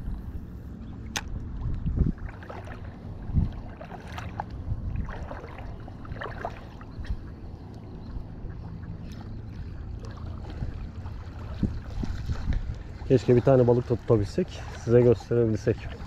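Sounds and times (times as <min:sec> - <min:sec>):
wind rumble on microphone: 0:00.0 - 0:16.0
small waves lapping: 0:00.1 - 0:16.0.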